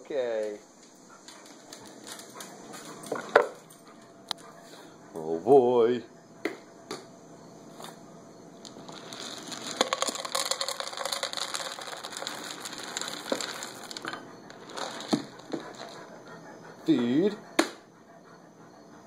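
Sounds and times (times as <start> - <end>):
cat crunching dry kibble: 8.7 - 16.0.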